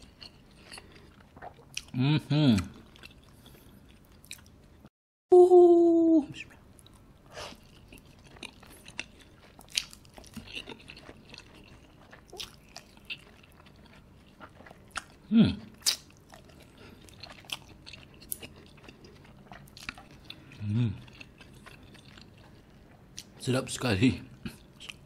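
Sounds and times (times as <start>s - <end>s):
chewing and wet mouth smacks: 0.0s - 2.0s, 6.5s - 23.4s.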